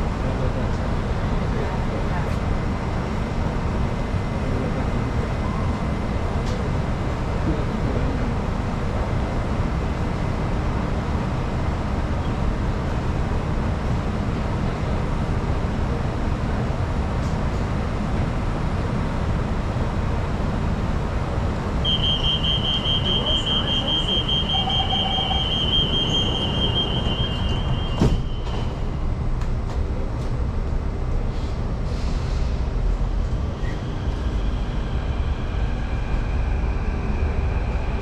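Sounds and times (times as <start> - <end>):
train rumble and hum: 0.0 - 38.0
door warning beeping: 21.8 - 28.9.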